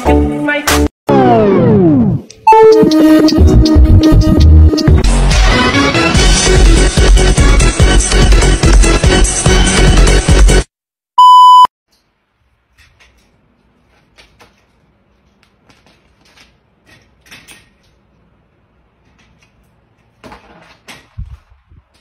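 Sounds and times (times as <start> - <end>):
music: 0.0 - 10.7
loud electronic beep: 11.2 - 11.7.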